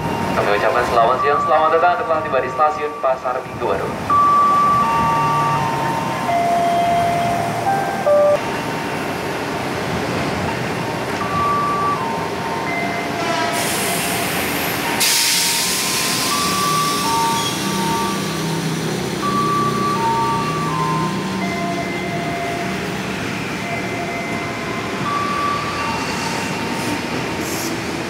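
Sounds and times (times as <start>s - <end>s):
train rumble: 0.0s - 28.0s
electric train whining tones: 4.1s - 9.3s, 10.4s - 27.9s
loud hiss: 13.6s - 17.8s.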